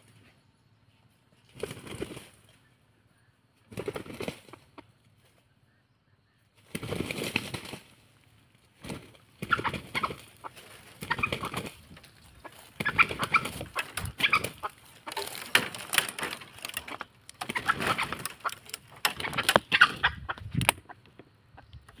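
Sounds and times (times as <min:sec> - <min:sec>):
wings flapping: 0:01.4 - 0:02.6, 0:03.6 - 0:05.4, 0:06.6 - 0:21.0
rooster clucking: 0:09.4 - 0:22.0
scuffling in dry leaves: 0:10.2 - 0:16.8.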